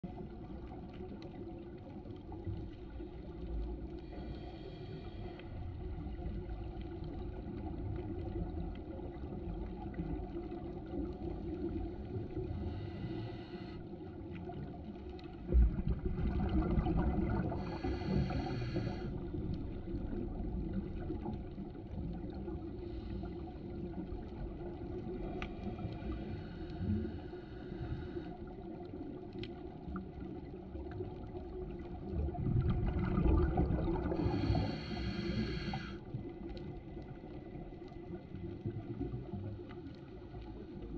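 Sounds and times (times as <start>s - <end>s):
low underwater rumble: 0.0s - 40.9s
regulator breath hiss: 4.1s - 5.5s, 12.6s - 13.8s, 17.6s - 19.2s, 34.2s - 36.0s
exhaled bubbles bursting: 15.4s - 17.8s, 31.4s - 34.5s.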